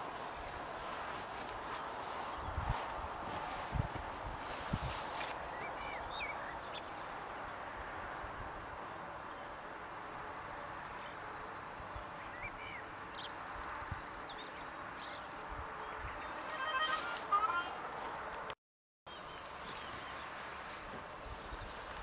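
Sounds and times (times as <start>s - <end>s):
bird chirps: 12.2s - 16.8s.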